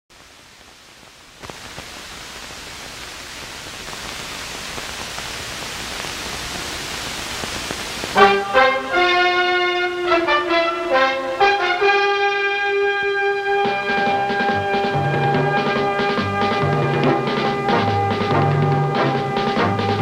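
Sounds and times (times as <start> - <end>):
film soundtrack hiss: 0.1 - 20.0
faint crackles: 0.2 - 8.2
brass music: 8.1 - 20.0.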